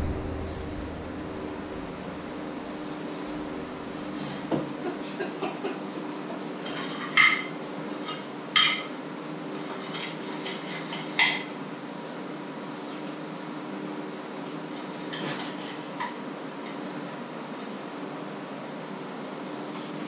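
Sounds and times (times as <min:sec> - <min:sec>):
steady low hum: 0:00.0 - 0:05.6
cutlery scraping on a plate: 0:06.6 - 0:08.9, 0:14.8 - 0:16.2.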